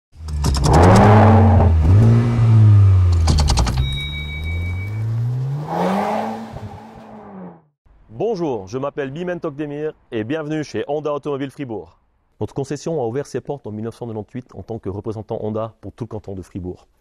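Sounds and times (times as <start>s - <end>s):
car engine revving: 0.2s - 7.7s.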